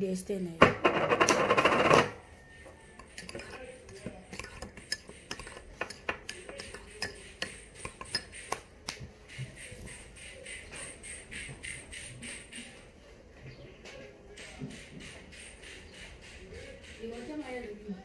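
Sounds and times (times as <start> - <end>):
small hard objects clicking: 4.3 - 9.4.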